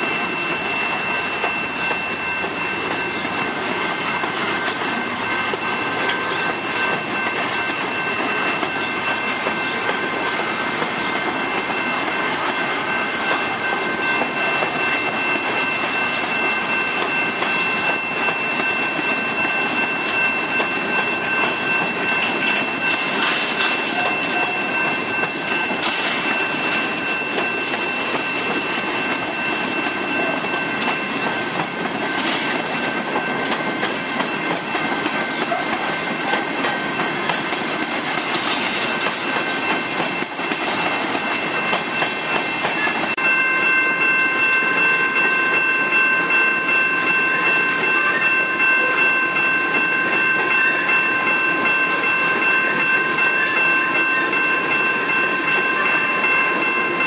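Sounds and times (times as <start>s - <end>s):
train wheels clattering over rails: 0.0s - 43.2s.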